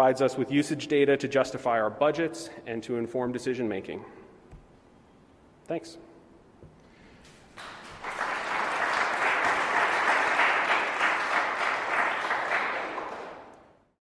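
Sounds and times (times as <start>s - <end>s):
audience applauding: 7.3s - 13.8s.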